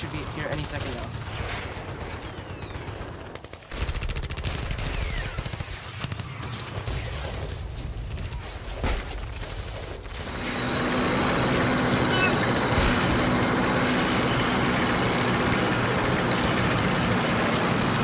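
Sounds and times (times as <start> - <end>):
machine-gun fire: 0.0 - 11.5.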